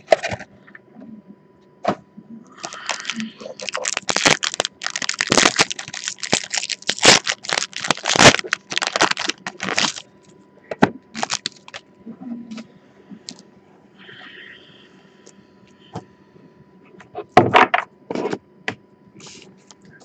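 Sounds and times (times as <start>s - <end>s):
foil wrapper crinkling: 2.6s - 10.1s, 11.1s - 11.8s.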